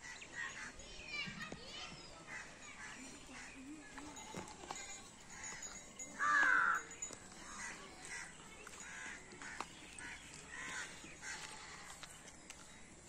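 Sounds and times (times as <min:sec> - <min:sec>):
crows cawing: 0:06.2 - 0:06.8, 0:07.5 - 0:12.0.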